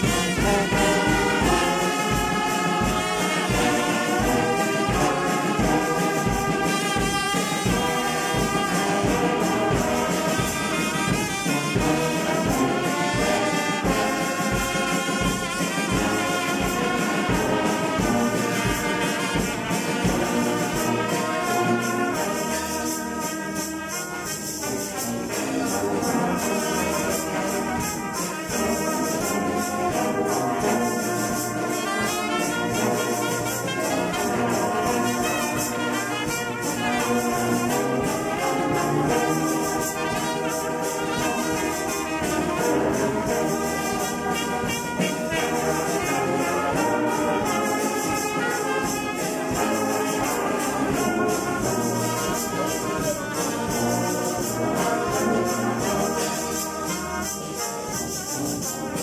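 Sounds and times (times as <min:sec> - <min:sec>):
steady beat: 0:00.0 - 0:26.0
brass band playing: 0:00.0 - 0:59.0.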